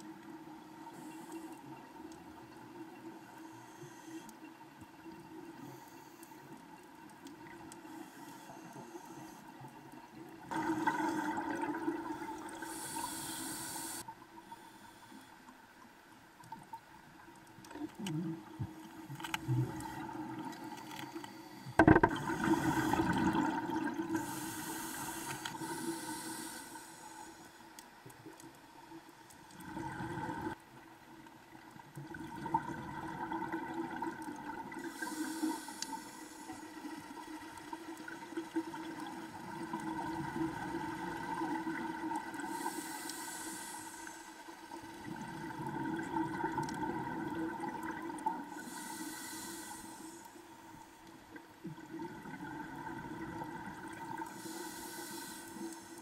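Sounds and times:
faint steady hum: 0.0 - 56.0
scuba regulator breathing underwater: 10.5 - 15.3, 19.0 - 27.6, 34.7 - 37.0, 41.3 - 44.5, 48.4 - 50.4, 54.2 - 56.0.

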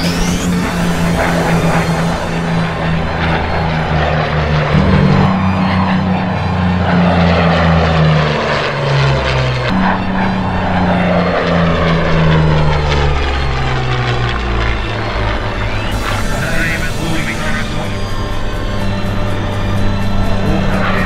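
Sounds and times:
propeller aircraft engine: 0.0 - 21.0
background music with bass line: 15.8 - 21.0.

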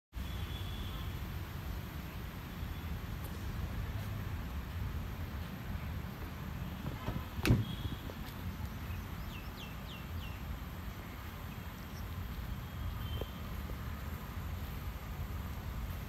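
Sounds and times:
sharp thump: 7.0 - 7.8.

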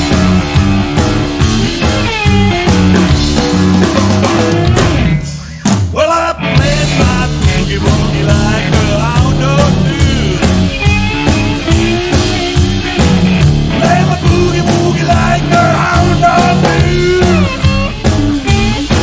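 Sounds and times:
blues boogie band playing: 0.0 - 19.0.

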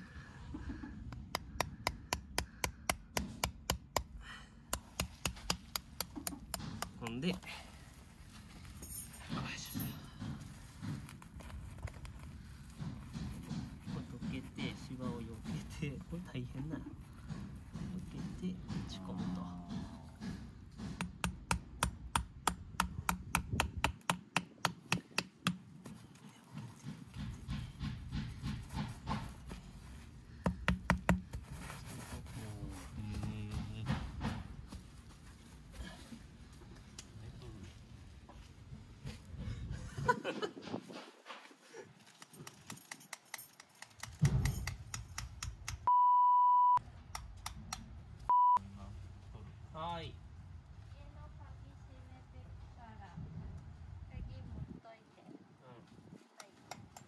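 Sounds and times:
small hammers tapping pins: 42.2 - 45.9
censor bleep: 45.9 - 46.8, 48.3 - 48.7.

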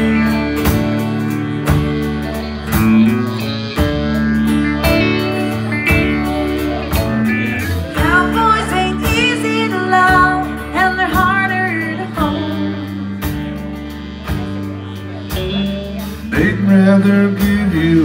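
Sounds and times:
country band playing: 0.0 - 18.0
melodic lead line: 0.0 - 18.0.

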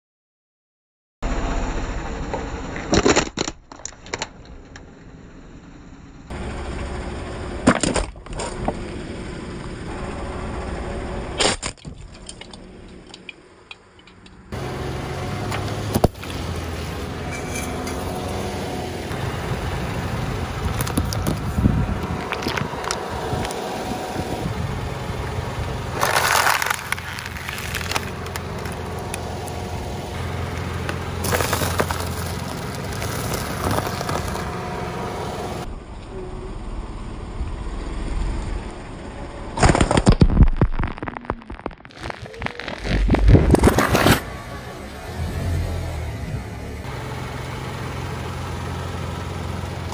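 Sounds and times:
plastic toy breaking: 2.8 - 4.4, 11.4 - 12.6, 26.0 - 28.8, 31.2 - 34.4, 39.6 - 44.2
car engine running: 4.0 - 49.9
tyre crushing objects: 26.0 - 29.1, 30.8 - 34.5, 39.6 - 44.2.

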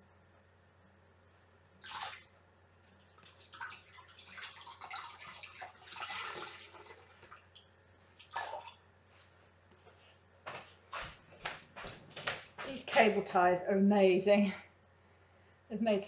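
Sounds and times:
water splashing: 1.8 - 2.3, 3.2 - 8.8
water sloshing and dripping: 1.8 - 2.4, 3.0 - 8.8.

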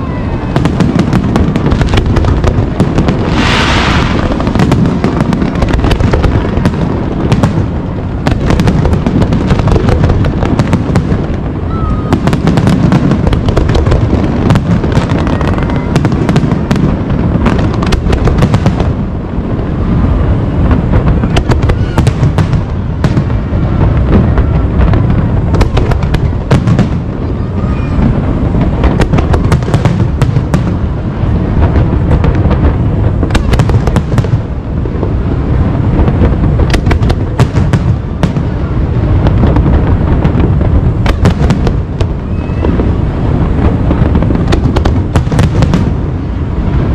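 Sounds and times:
fireworks booming: 0.0 - 46.9
fireworks cracking: 0.0 - 46.9.

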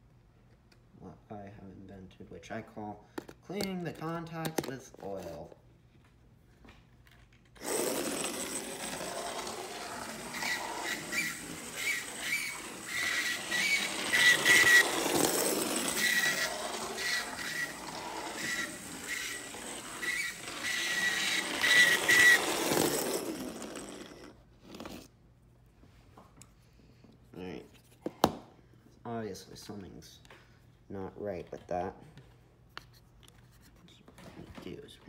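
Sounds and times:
model locomotive motor whirring rattle: 7.6 - 24.4.

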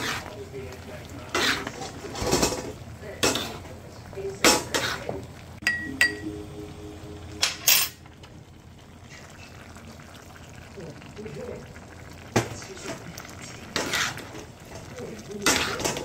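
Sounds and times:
spatula scraping in a wok: 0.0 - 0.4, 1.2 - 3.8, 4.5 - 5.2, 13.6 - 14.8, 15.4 - 16.0
spoon clinking on glass bowl: 5.6 - 6.2.

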